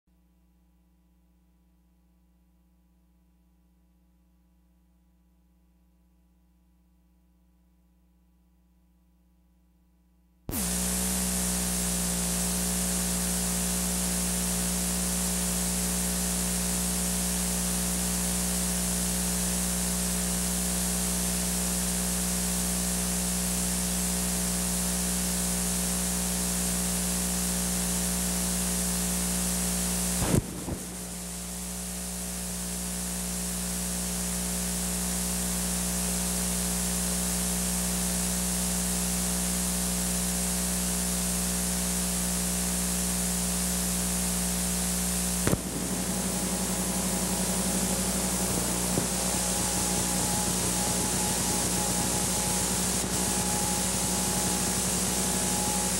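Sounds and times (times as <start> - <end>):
low electrical hum: 0.2 - 55.9
tape hiss: 10.5 - 55.9
brief crackle: 30.2 - 32.5, 45.4 - 55.8.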